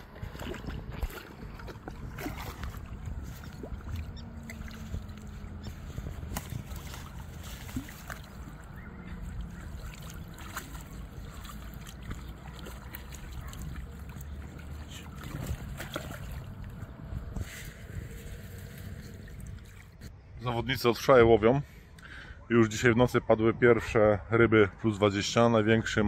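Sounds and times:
water sloshing and splashing: 0.0s - 20.1s
wind rumble on microphone: 0.0s - 20.2s.

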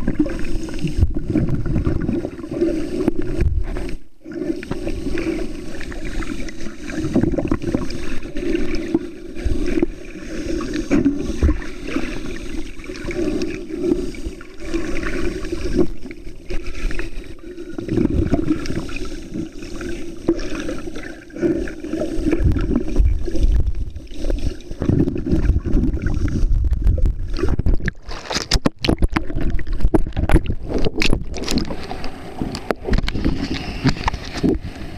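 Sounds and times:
underwater rushing and sloshing: 0.0s - 34.9s
sharp crackles and knocks: 24.8s - 34.7s.

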